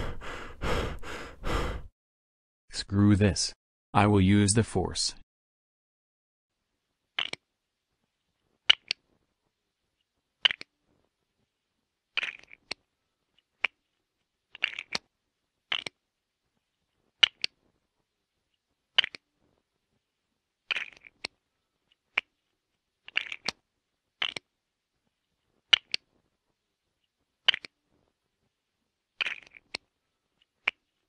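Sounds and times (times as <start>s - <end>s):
plastic bricks clicking together: 7.2s - 7.4s, 12.2s - 12.8s, 14.5s - 15.1s, 15.7s - 16.0s, 20.7s - 21.4s, 23.0s - 23.6s, 24.2s - 24.5s, 25.7s - 26.0s, 29.2s - 29.8s.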